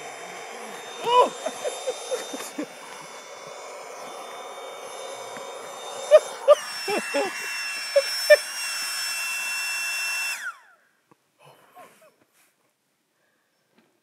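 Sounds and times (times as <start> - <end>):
air pump motor whine: 0.0 - 10.8.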